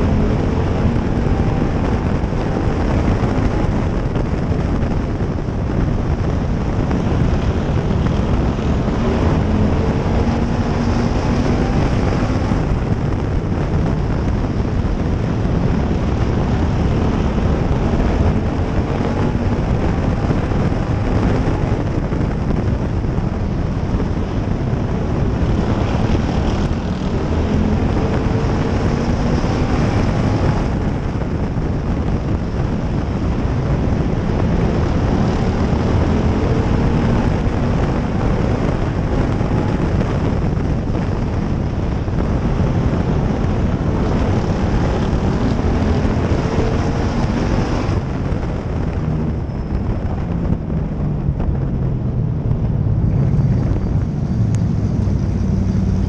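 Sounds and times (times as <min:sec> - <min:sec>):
race car engine running hard: 0:00.0 - 0:56.0.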